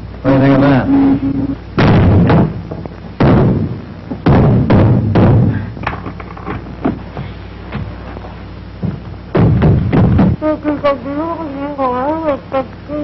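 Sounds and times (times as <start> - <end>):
heavy thumps ringing: 1.0 - 8.0, 8.8 - 10.8.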